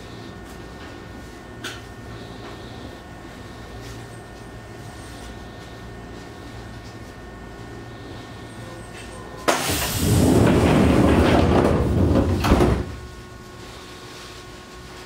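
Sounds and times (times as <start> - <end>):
faint train hum: 0.0 - 10.7
rush of air from train doors: 9.4 - 13.7
doors knocking shut: 9.5 - 13.1
sliding door panels rumbling: 9.6 - 13.2.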